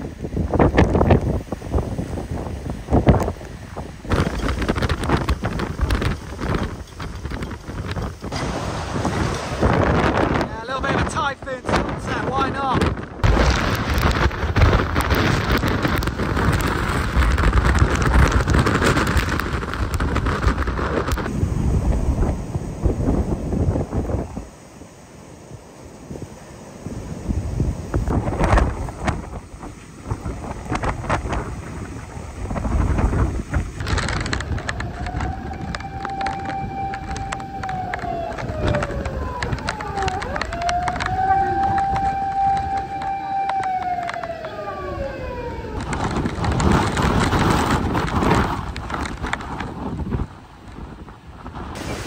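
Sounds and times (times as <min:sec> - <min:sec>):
heavy wind-driven rain: 0:00.0 - 0:52.0
strong wind gusting: 0:00.0 - 0:52.0
wind buffeting microphone: 0:00.0 - 0:52.0
fire engine siren wailing: 0:33.8 - 0:48.1.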